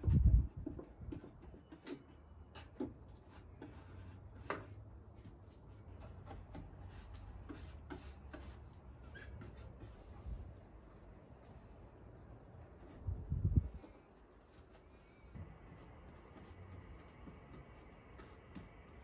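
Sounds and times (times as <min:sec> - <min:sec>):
paintbrush dabbing and stroking: 0:06.8 - 0:10.4.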